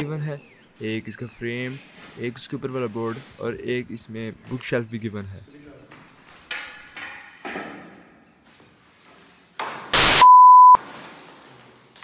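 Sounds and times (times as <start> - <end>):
loud static hiss: 10.0 - 10.4
test-tone beep: 10.0 - 10.8.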